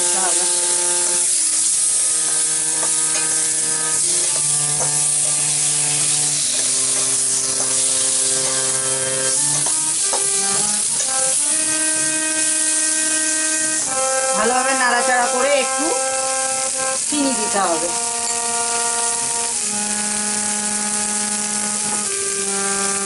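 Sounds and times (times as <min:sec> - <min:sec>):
okra sizzling in a pan: 0:00.0 - 0:23.0
slow background music: 0:00.0 - 0:23.0
spatula scraping and tapping: 0:02.7 - 0:11.3.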